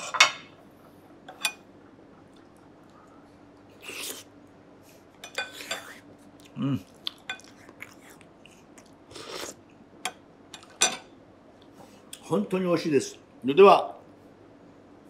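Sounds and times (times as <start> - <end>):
person sipping soup: 3.7 - 4.3, 5.6 - 9.6
person humming mm: 6.6 - 6.9.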